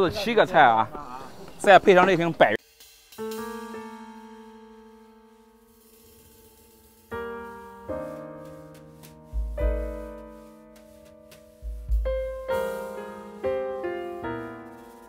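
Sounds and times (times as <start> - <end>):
piano chords: 3.2 - 15.0.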